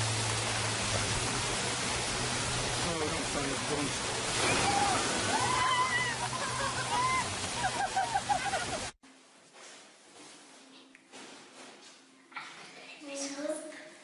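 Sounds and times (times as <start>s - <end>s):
fountain water pouring: 0.0s - 9.0s
people shrieking and yelling: 4.4s - 8.8s.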